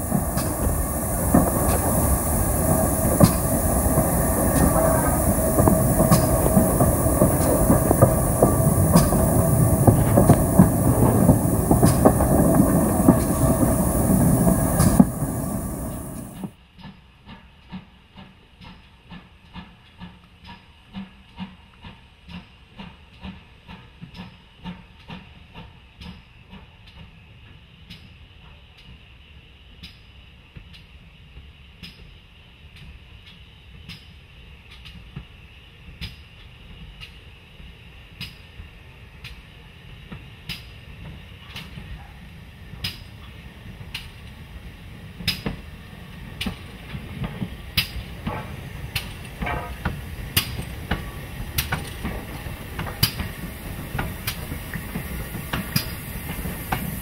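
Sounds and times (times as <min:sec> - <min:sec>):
wheels clicking over rail joints: 0:00.0 - 0:16.5, 0:40.1 - 0:57.0
steam locomotive soft beats: 0:00.0 - 0:57.0
train rumble and hiss: 0:00.0 - 0:57.0.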